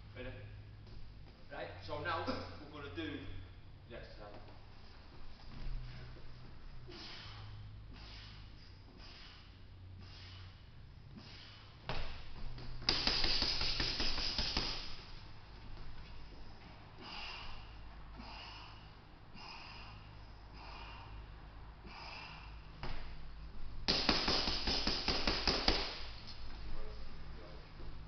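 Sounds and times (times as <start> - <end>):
short hard breaths: 6.8 - 11.9, 16.9 - 22.8.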